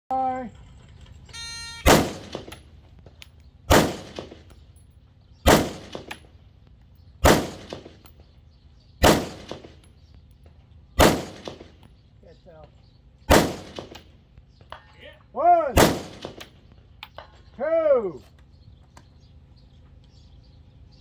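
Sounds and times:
rifle shots: 1.8s - 2.7s, 3.7s - 4.5s, 5.4s - 6.3s, 7.2s - 8.1s, 9.0s - 9.8s, 11.0s - 11.8s, 13.3s - 14.1s, 15.8s - 16.6s.

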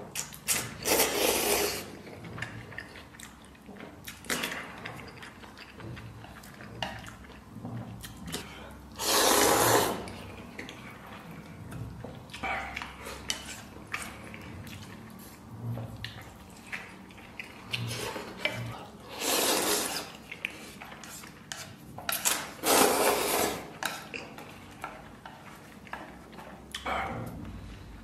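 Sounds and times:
person chewing: 0.1s - 28.0s
person slurping noodles: 0.5s - 2.0s, 8.3s - 10.4s, 17.9s - 20.3s, 22.3s - 23.9s.

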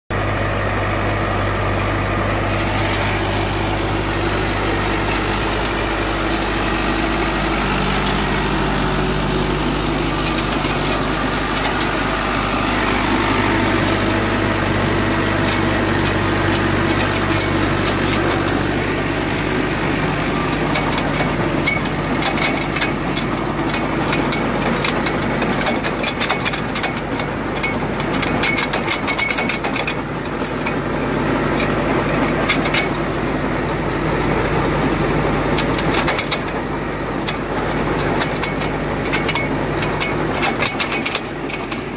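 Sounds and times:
tractor engine running: 0.1s - 41.9s
rapid uneven clicking: 2.7s - 19.2s.

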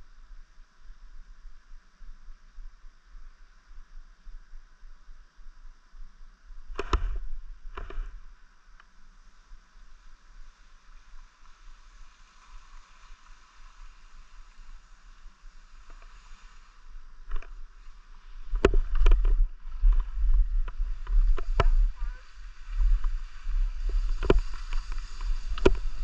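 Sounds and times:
wind rumbling on microphone: 0.0s - 26.0s
skis sliding on snow: 9.0s - 26.0s.

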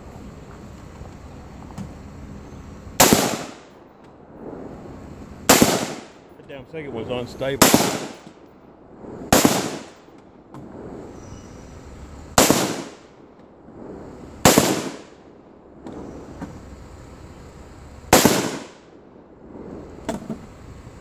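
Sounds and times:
rifle shots with echo: 3.0s - 3.9s, 5.5s - 6.4s, 7.6s - 10.8s, 12.4s - 13.2s, 14.4s - 15.3s, 18.1s - 19.0s.

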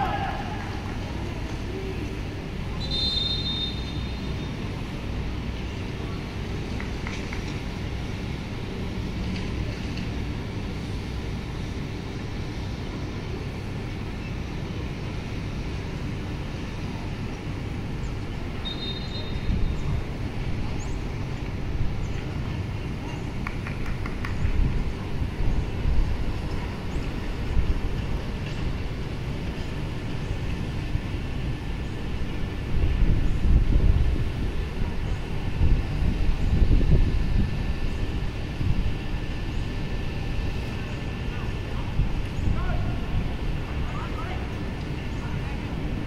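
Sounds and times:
low outdoor rumble: 0.0s - 46.0s
referee's whistle blasts: 2.8s - 4.1s, 18.6s - 19.5s.

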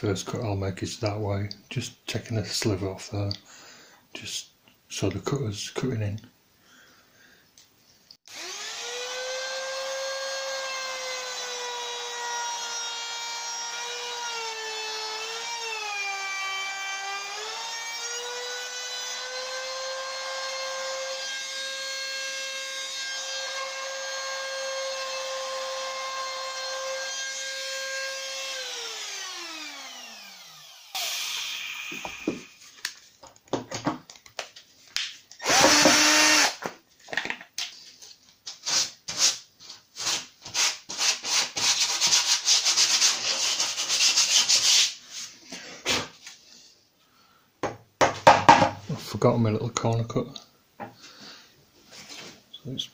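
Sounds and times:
high-speed electric motor whine: 28.4s - 32.3s, 35.4s - 36.5s
cordless drill burst: 28.4s - 32.6s, 35.4s - 36.6s.

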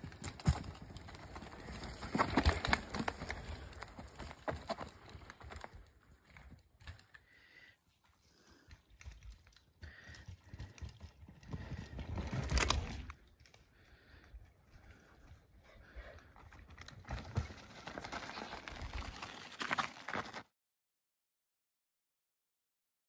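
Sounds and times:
bike tyres crunching over twigs: 0.0s - 7.4s, 8.3s - 14.1s, 16.4s - 20.5s
bike clicks and rattles: 8.9s - 13.7s.

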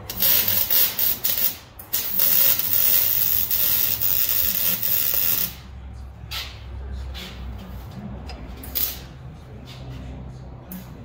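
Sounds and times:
welder crackling: 0.0s - 5.6s, 8.6s - 9.1s.

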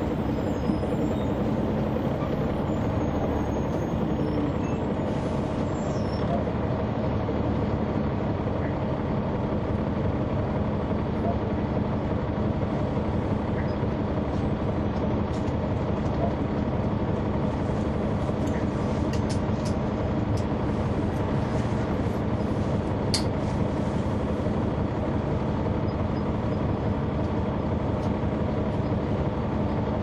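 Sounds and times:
bus diesel engine drone: 0.0s - 30.0s.

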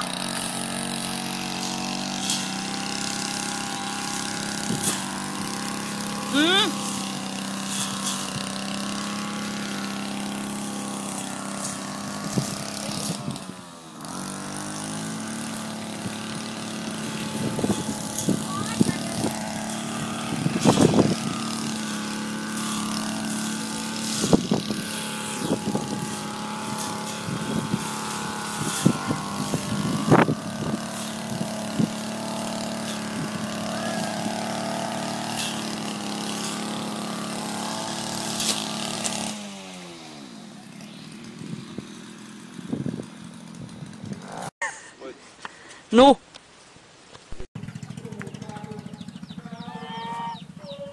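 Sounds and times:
engine running: 0.0s - 44.6s, 47.6s - 50.9s
engine knocks: 47.6s - 49.5s.

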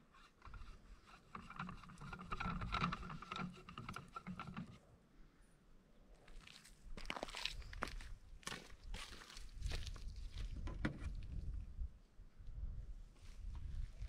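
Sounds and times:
light clicks and rubbing: 0.1s - 4.8s.

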